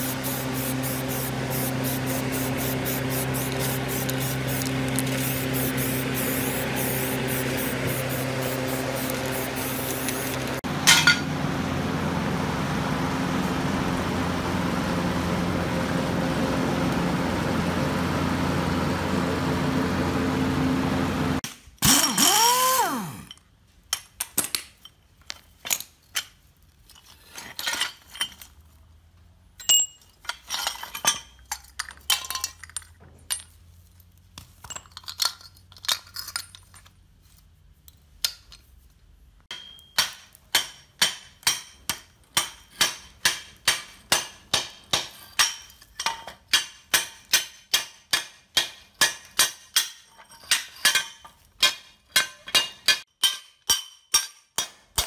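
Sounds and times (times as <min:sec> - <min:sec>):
metal parts clinking on concrete: 0:06.5 - 0:11.3, 0:23.1 - 0:28.8, 0:29.5 - 0:55.0.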